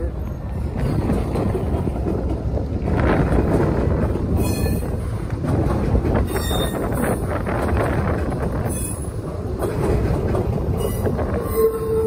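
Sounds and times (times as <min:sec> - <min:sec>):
freight train rumbling past: 0:00.0 - 0:12.0
wind buffeting microphone: 0:00.0 - 0:12.0
high wheel squeal: 0:06.3 - 0:06.9.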